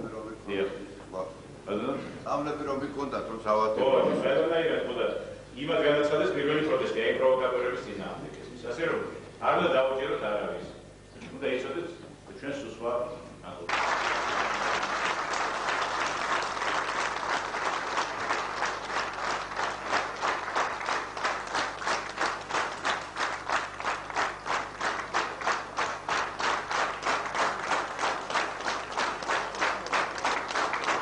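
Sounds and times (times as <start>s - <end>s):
audience applauding: 13.7s - 31.0s.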